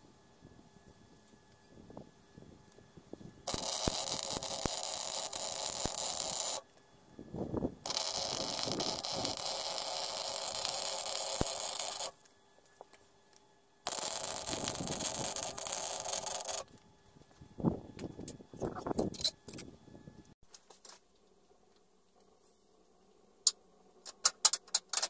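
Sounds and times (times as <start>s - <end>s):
arc welding crackling sizzle: 3.4s - 6.8s, 7.8s - 13.1s, 13.8s - 16.8s.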